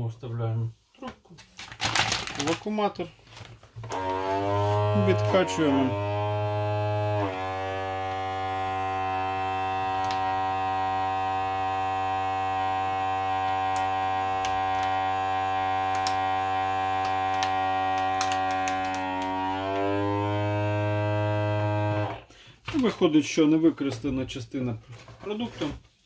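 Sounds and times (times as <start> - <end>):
plastic bag clicks: 1.6 - 2.7, 17.0 - 19.3
vacuum sealer pump humming: 3.8 - 22.3.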